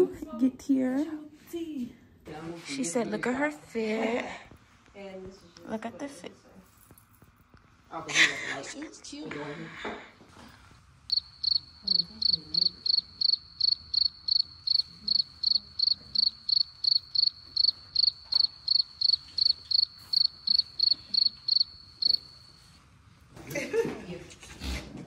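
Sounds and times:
cricket chirping: 11.1s - 22.8s.

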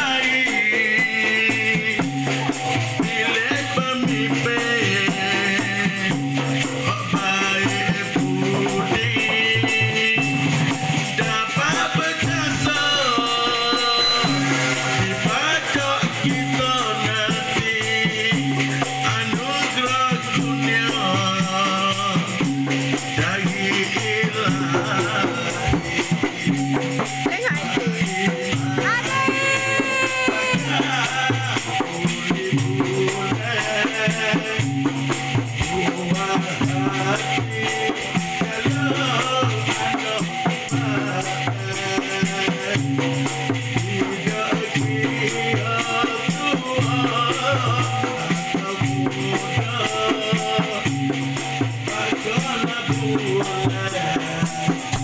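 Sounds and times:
hand drum rhythm: 0.0s - 55.0s
maracas shaking: 0.0s - 55.0s
person singing: 27.1s - 34.6s.

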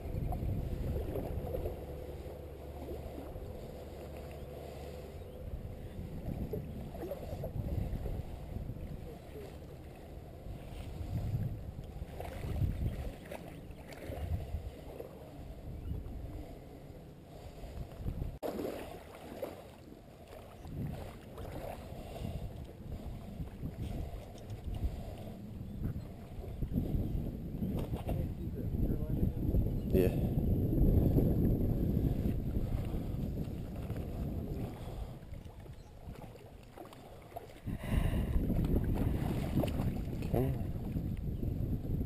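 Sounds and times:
water sloshing around legs: 0.0s - 15.4s, 17.7s - 25.4s, 32.1s - 41.0s
wind rumbling on microphone: 0.0s - 19.0s, 20.0s - 42.0s.

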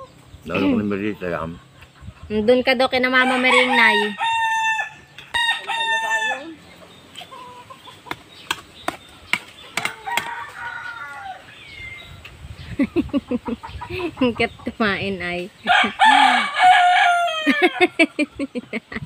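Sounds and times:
rooster crowing: 3.1s - 6.6s, 9.8s - 12.1s, 15.7s - 18.0s.

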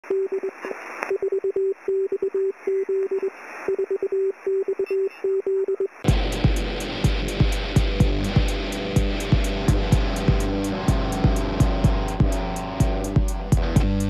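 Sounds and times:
morse code beeps: 0.1s - 6.0s
faint clicks and hiss: 0.5s - 1.2s
music with thumping beat: 6.1s - 14.0s.

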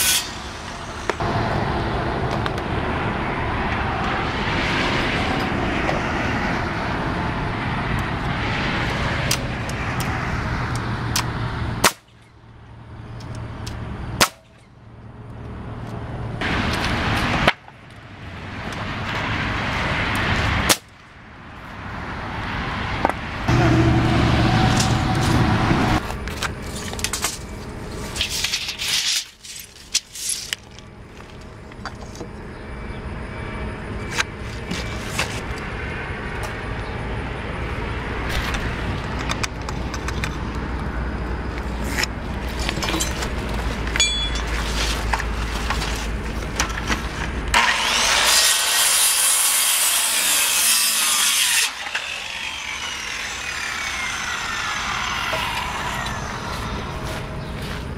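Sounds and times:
circular saw cutting wood: 0.0s - 1.4s, 23.5s - 26.1s, 47.5s - 57.6s
loud hum: 0.0s - 5.9s, 23.4s - 28.8s, 51.7s - 57.9s.

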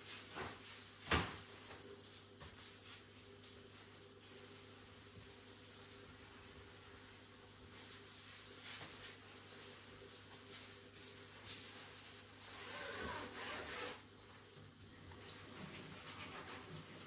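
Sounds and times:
cloth scrubbing a countertop: 0.0s - 17.0s
faint steady hum: 0.0s - 17.0s.

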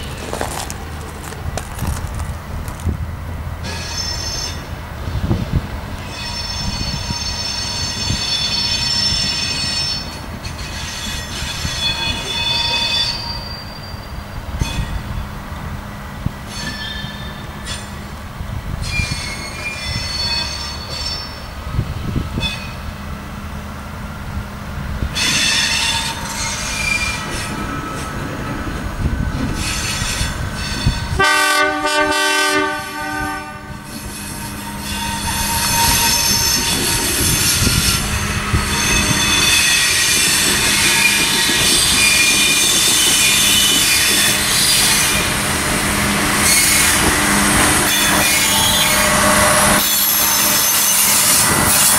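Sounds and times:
diesel railcar running: 0.0s - 51.9s
wheels squealing on curves: 25.1s - 28.6s, 33.8s - 45.4s, 46.3s - 51.9s
train horn: 30.9s - 37.7s, 46.0s - 51.9s.

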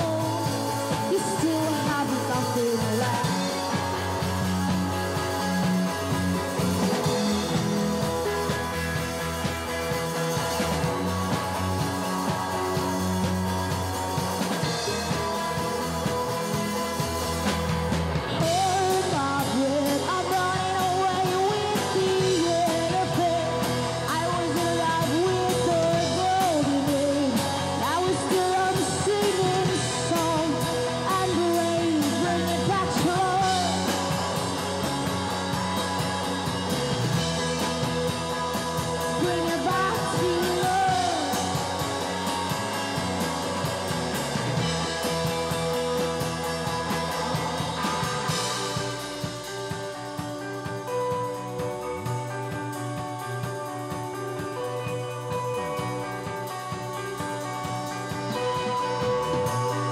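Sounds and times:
drum kit: 0.0s - 59.9s
electric guitar: 0.0s - 59.9s
person singing: 18.3s - 34.3s, 39.1s - 41.9s.

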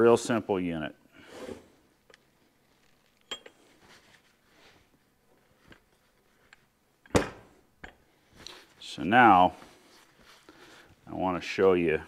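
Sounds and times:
metallic clink: 3.2s - 3.6s.

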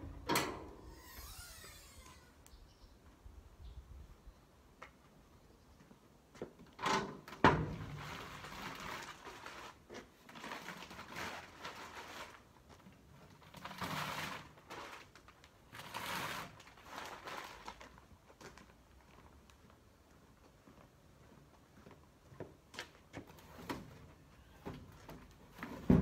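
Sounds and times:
plastic rustling and crinkling: 7.8s - 19.8s.

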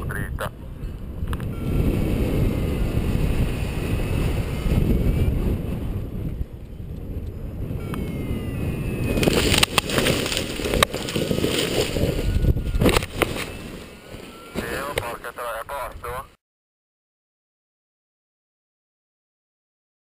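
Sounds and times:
wind buffeting microphone: 0.0s - 16.3s
rough rustling: 8.9s - 15.0s.

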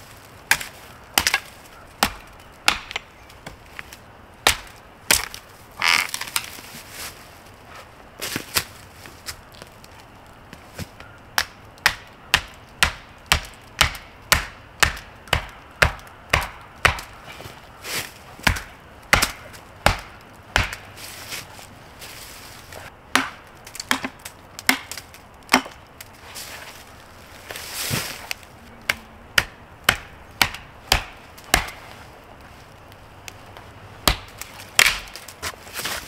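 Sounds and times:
wood being chopped: 0.5s - 6.6s, 10.8s - 17.2s, 17.9s - 20.9s, 22.8s - 26.1s, 27.5s - 31.9s, 34.0s - 36.0s.

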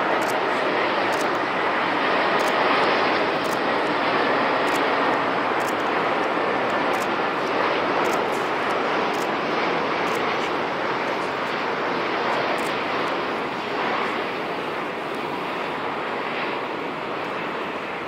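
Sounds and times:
jet engines rushing: 0.0s - 18.0s.

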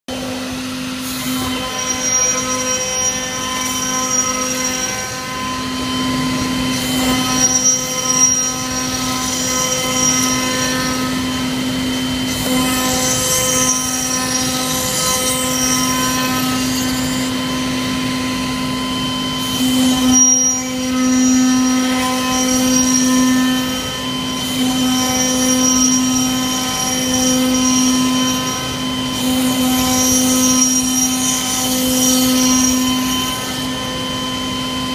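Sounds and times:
router spindle milling wood: 0.1s - 17.6s.

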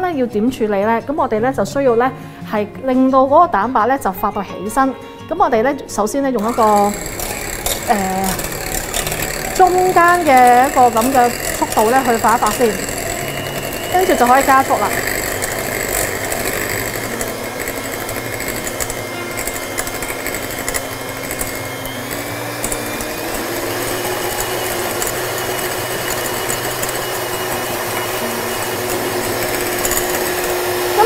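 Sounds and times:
electric hand mixer whisking: 6.4s - 31.0s.

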